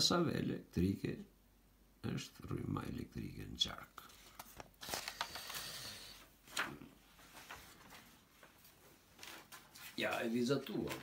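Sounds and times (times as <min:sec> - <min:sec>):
paper rustling: 0:04.0 - 0:11.0.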